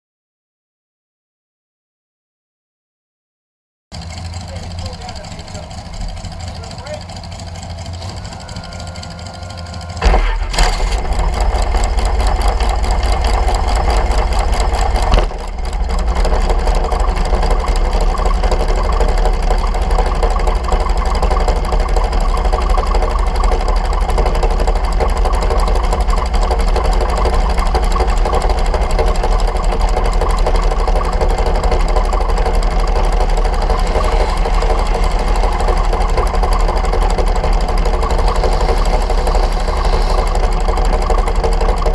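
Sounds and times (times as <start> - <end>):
dragster engine idling: 3.9 - 41.9.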